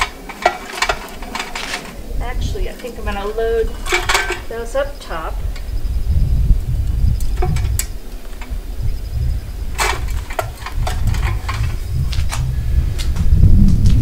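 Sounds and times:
sticks clattering against metal stove: 0.0s - 5.7s, 6.8s - 9.1s, 9.7s - 12.5s
wind rumble on microphone: 0.0s - 14.0s.

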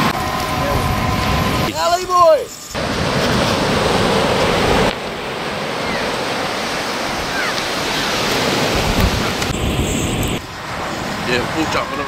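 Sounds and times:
surf breaking on a beach: 0.0s - 12.0s
wind on microphone: 2.7s - 12.0s
gull cries: 5.8s - 6.2s, 7.2s - 8.2s.

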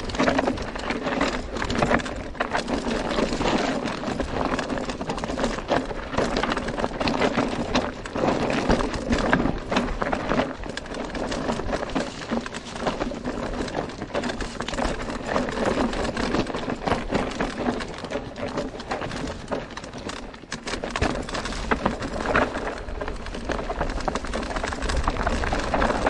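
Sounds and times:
tyres crunching over stones: 0.0s - 26.0s.

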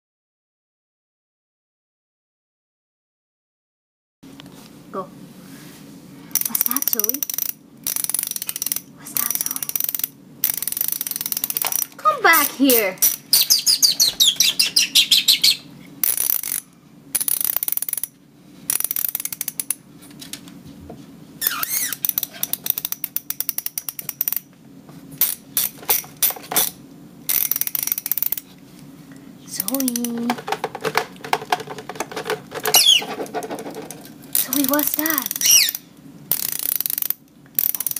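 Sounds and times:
torque wrench ratchet clicking: 6.3s - 13.5s, 16.0s - 18.1s, 18.7s - 19.8s, 21.6s - 24.5s, 25.2s - 26.7s, 27.3s - 28.4s, 34.3s - 37.9s
lovebird chirping: 13.3s - 15.7s, 21.4s - 22.0s, 32.7s - 33.1s, 35.4s - 35.8s.

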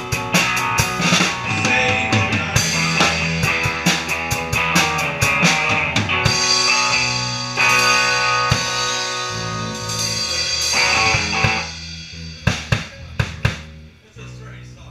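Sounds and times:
rock band playing live: 0.0s - 13.7s
drum hits: 0.0s - 13.8s
ringing cymbals: 6.3s - 13.2s.

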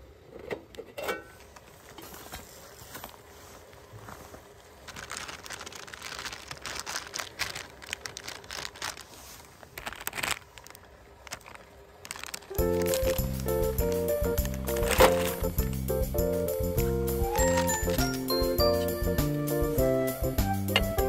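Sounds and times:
plastic packet crinkling: 4.5s - 15.8s, 17.3s - 18.7s
background music: 12.6s - 21.0s.

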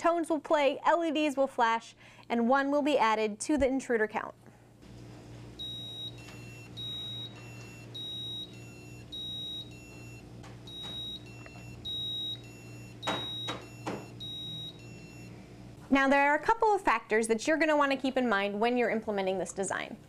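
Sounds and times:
alternating alarm beeps: 5.6s - 15.4s.

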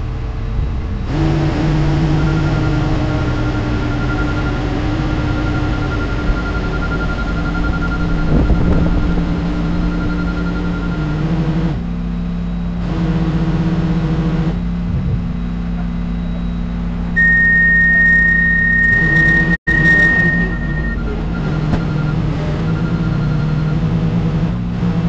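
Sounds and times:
steady high-pitched tone: 0.0s - 24.6s
heavy machinery engines droning: 0.0s - 25.0s.

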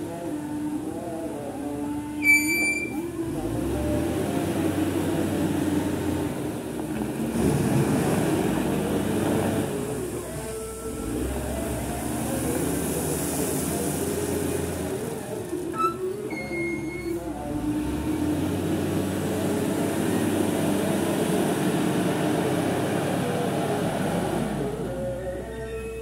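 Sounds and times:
wheel loader diesel engine: 0.0s - 26.0s
short high beep: 2.2s - 3.0s.

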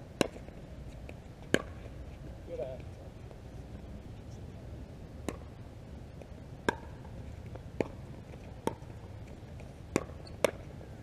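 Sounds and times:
paddles hitting plastic ball: 9.9s - 10.7s.

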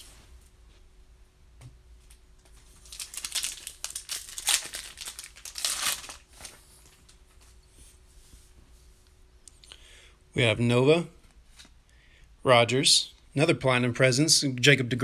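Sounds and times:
foil wrapper tearing and crinkling: 2.8s - 6.6s.

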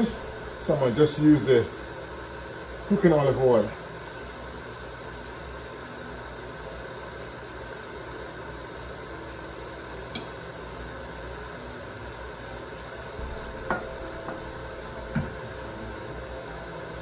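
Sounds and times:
kitchen background hiss: 0.0s - 5.6s.

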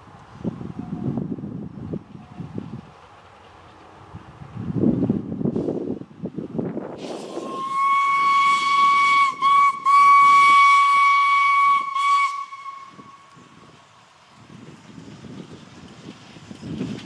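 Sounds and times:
steam hissing: 6.8s - 17.0s
steam locomotive whistle: 7.0s - 13.5s.

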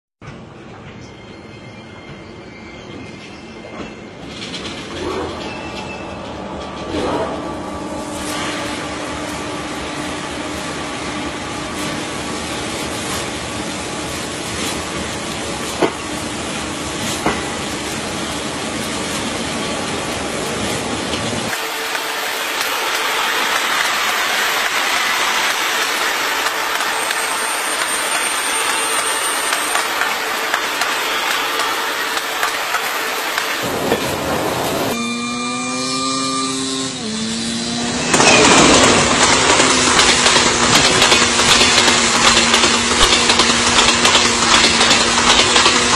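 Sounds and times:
train rolling slowly: 0.2s - 35.4s, 36.5s - 45.9s
loud rushing noise: 21.5s - 35.0s.

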